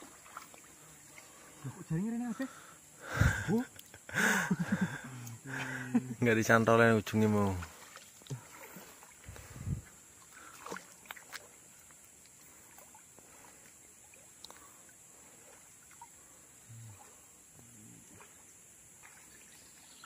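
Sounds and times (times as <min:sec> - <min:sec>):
water sloshing and splashing: 0:00.0 - 0:01.9, 0:06.5 - 0:19.9
faint water lapping: 0:00.0 - 0:20.0.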